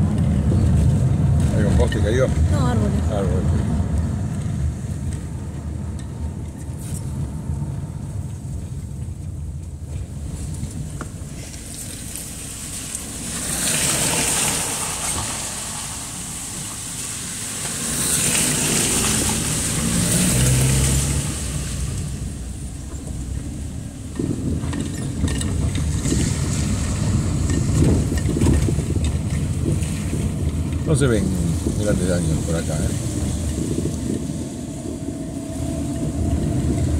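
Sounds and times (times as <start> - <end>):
car engine and road rumble: 0.0 - 36.9
tyres hissing through water: 11.4 - 22.8.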